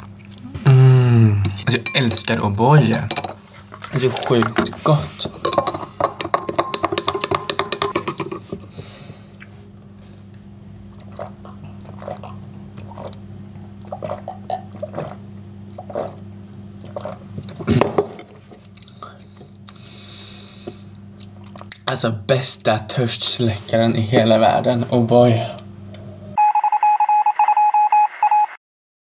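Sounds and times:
steady low hum: 0.0s - 26.4s
gulping and swallowing: 10.9s - 18.0s.

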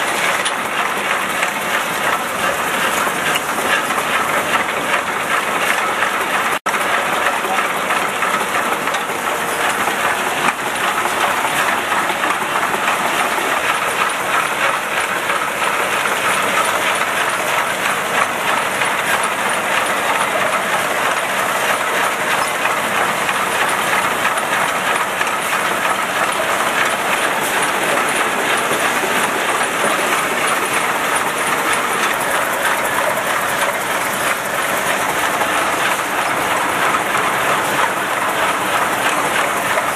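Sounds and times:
labelling machine clattering: 0.0s - 39.9s.

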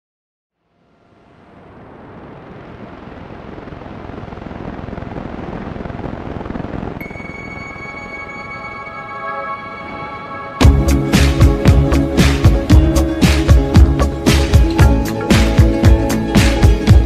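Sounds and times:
deep rumbling noise: 1.3s - 8.1s
sustained music drone tones: 7.0s - 17.0s.

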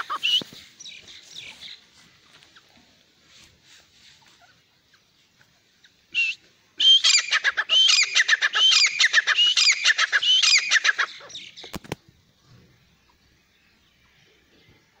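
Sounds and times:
bird calling shrilly: 0.0s - 1.8s, 5.8s - 11.8s.

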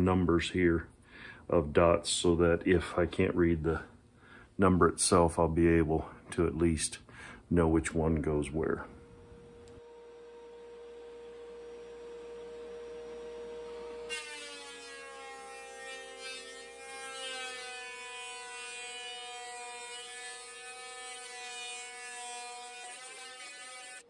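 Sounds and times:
planer humming and cutting wood: 9.4s - 24.0s.

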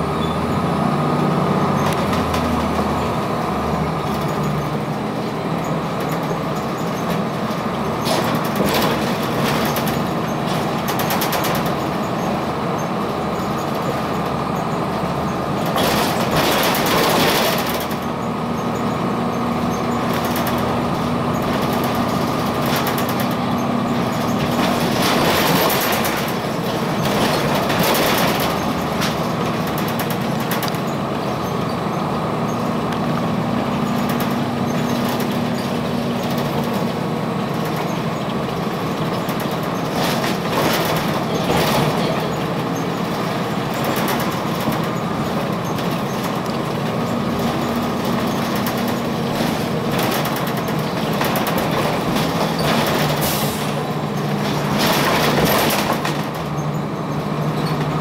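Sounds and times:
bus engine droning: 0.0s - 58.0s
road noise: 0.0s - 58.0s
rattling: 19.8s - 31.4s.

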